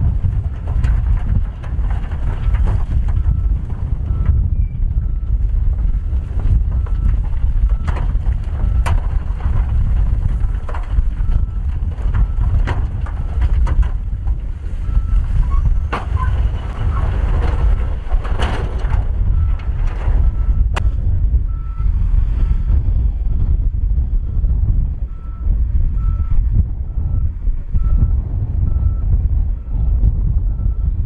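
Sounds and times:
rocks and dirt sliding: 0.0 - 22.8
truck engine rumble: 0.0 - 31.0.

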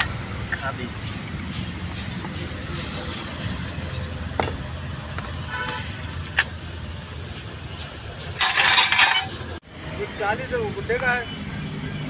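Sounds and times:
metal tools knocking and clinking: 4.3 - 6.5, 7.8 - 9.5.

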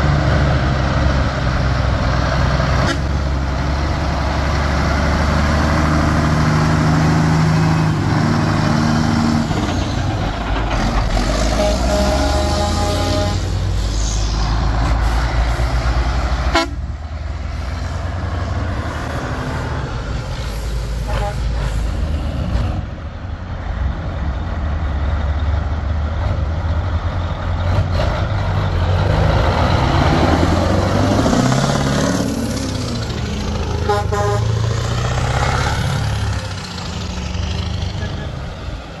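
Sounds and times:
diesel truck engines passing: 0.0 - 39.0
truck horn toots: 2.8 - 3.2, 11.3 - 13.6, 16.5 - 16.9, 21.0 - 21.6, 33.8 - 34.8, 37.8 - 38.6.

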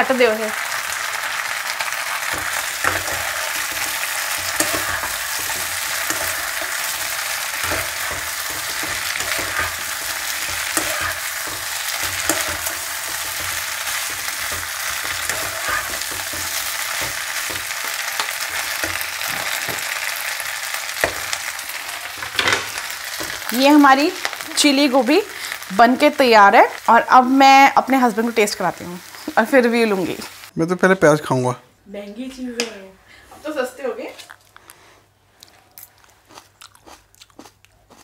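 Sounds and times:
food sizzling in a pan: 0.0 - 30.5
wooden spatula scraping a pan: 2.2 - 20.0.

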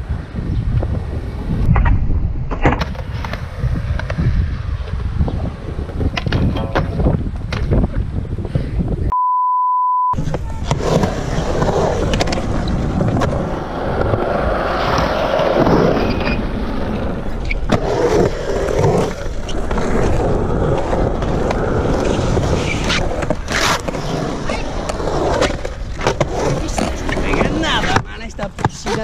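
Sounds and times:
skateboard wheels rolling on concrete: 0.0 - 9.1, 10.2 - 29.0
steady beep: 9.1 - 10.2.

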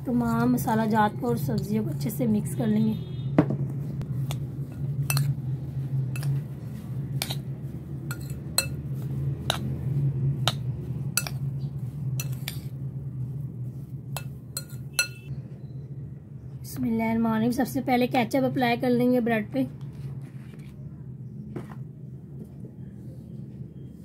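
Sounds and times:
steady low hum: 0.0 - 24.0
metal spoon clinking in bowl: 5.0 - 5.4, 6.2 - 6.4, 8.1 - 8.8, 11.2 - 11.4, 12.2 - 12.7, 14.2 - 15.3.

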